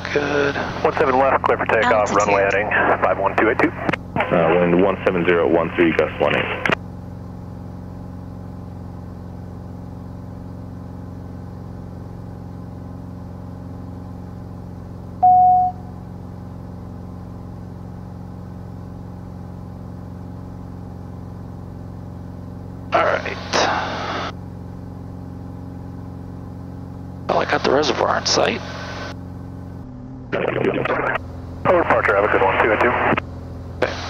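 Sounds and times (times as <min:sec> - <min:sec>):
aircraft engine and propeller drone: 0:00.0 - 0:34.0
short beep: 0:15.2 - 0:16.0.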